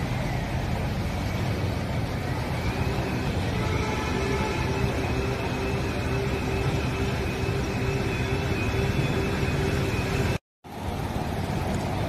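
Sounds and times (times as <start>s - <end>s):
faint steady tones: 0.0s - 12.0s
vehicle engine noise: 0.0s - 12.0s.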